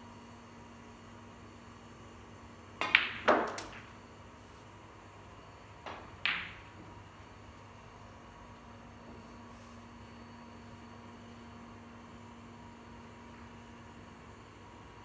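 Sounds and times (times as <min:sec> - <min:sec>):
snooker balls knocking: 0:02.8 - 0:04.0, 0:05.8 - 0:07.0.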